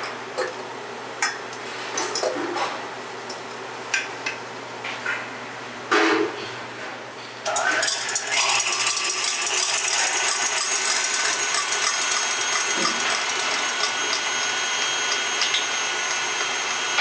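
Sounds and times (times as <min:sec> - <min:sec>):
stand mixer whirring: 0:07.5 - 0:17.0
whisk beating in metal bowl: 0:07.6 - 0:17.0.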